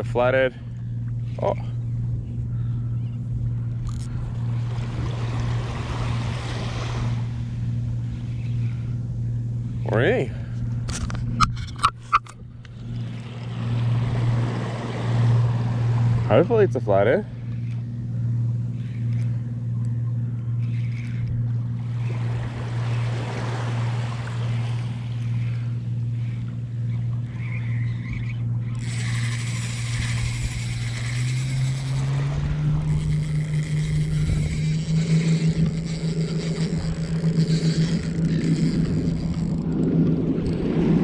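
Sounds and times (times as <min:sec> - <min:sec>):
fishing reel whirring: 0:00.0 - 0:41.0.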